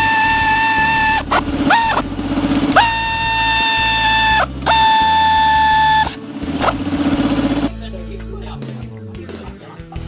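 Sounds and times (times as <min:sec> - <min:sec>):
air ratchet whine and rattle: 0:00.0 - 0:07.8.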